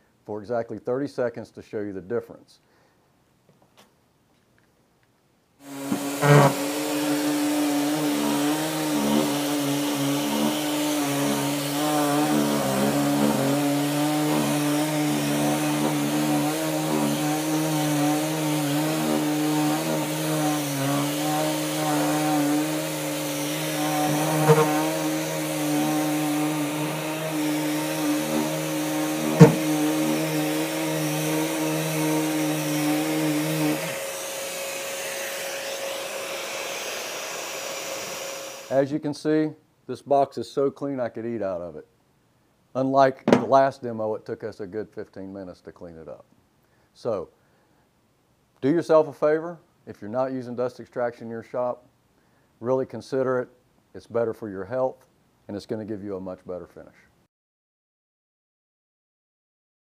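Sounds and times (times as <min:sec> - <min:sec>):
electric sander on wood: 0:05.6 - 0:38.7
dust extractor hum: 0:05.6 - 0:38.8
sharp knock: 0:43.3 - 0:43.5.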